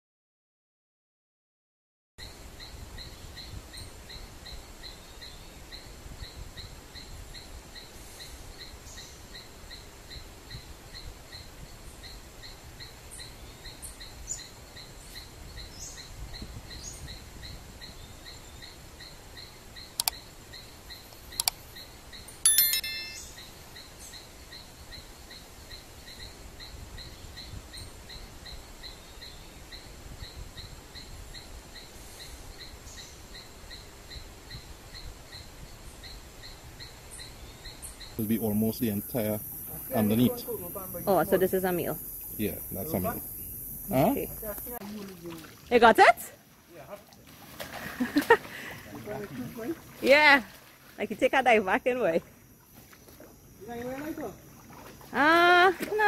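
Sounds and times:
sharp clicks: 0:21.4 - 0:21.6
rhythmic chirping: 0:22.5 - 0:23.4.

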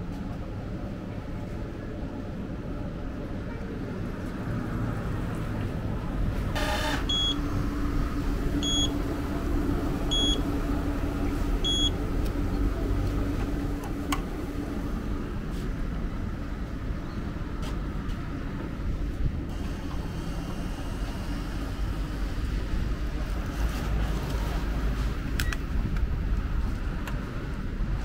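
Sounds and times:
machine motor rumble: 0:05.0 - 0:16.8
short high electronic beeps: 0:06.6 - 0:07.4, 0:08.6 - 0:08.9.

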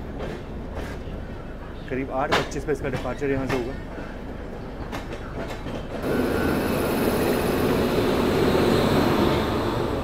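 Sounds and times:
locomotive cooling blowers rushing: 0:06.0 - 0:10.0.

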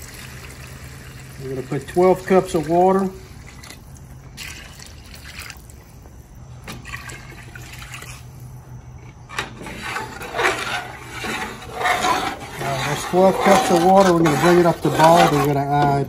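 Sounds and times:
water pouring into pot: 0:00.0 - 0:05.8, 0:06.8 - 0:08.5.

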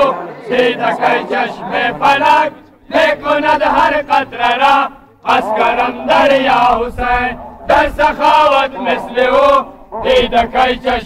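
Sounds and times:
man chanting a lament: 0:04.0 - 0:11.0.

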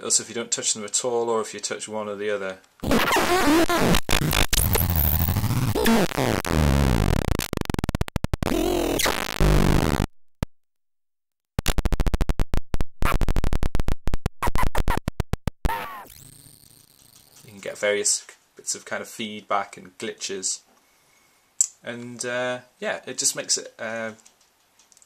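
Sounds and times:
warbling electronic glitch noise: 0:02.8 - 0:10.1, 0:11.6 - 0:17.5
rapid stuttering clicks: 0:02.8 - 0:10.5, 0:11.6 - 0:17.5.

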